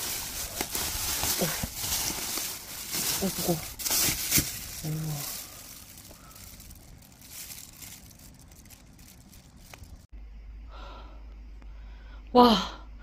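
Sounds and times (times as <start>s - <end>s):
plastic bag rustling: 0.0s - 10.1s
low steady hum: 0.0s - 13.0s.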